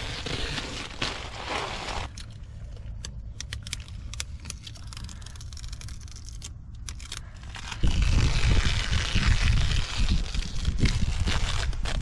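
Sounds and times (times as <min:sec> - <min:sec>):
rough rustling noise: 0:00.0 - 0:02.6
low steady rumble: 0:00.0 - 0:12.0
plastic film peeling crackles: 0:03.5 - 0:12.0.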